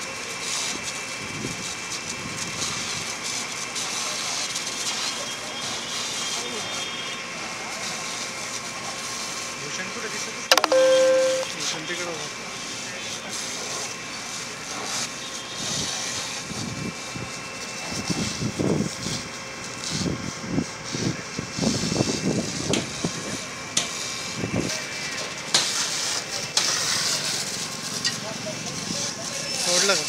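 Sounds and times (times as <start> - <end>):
people talking: 9.6 - 12.3, 28.2 - 30.0.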